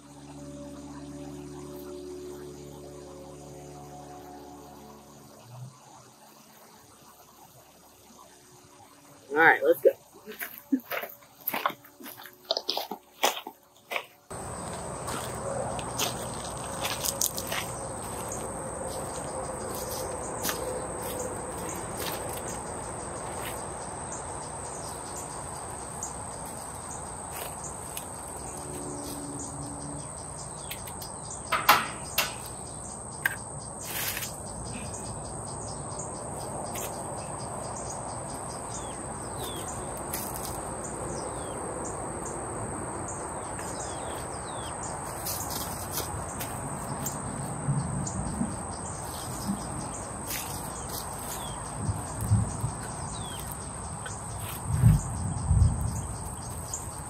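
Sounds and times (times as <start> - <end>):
high-pitched insect drone: 0.0 - 12.3, 14.3 - 57.0
pots bumping on gravel: 10.4 - 22.5, 30.7 - 32.6
birds chirping: 14.3 - 42.4, 43.0 - 57.0
sharp knocks: 31.5 - 32.6.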